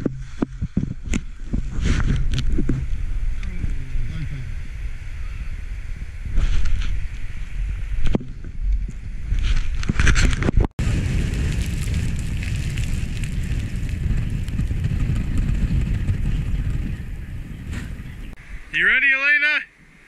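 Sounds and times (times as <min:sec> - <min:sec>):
wind rumbling on microphone: 0:00.0 - 0:18.8
skis scraping on snow: 0:10.8 - 0:18.4.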